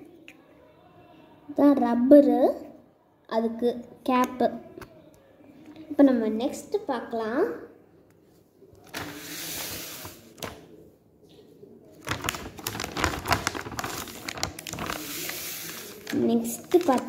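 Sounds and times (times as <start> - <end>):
plastic packaging crinkling: 8.9 - 10.6, 12.0 - 17.0.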